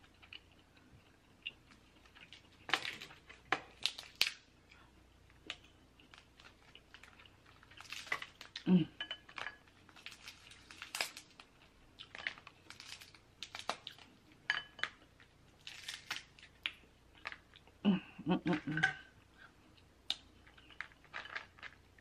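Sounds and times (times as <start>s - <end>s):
crab shells cracking by hand: 2.0s - 4.5s, 5.4s - 8.6s, 9.4s - 14.1s, 15.6s - 17.6s.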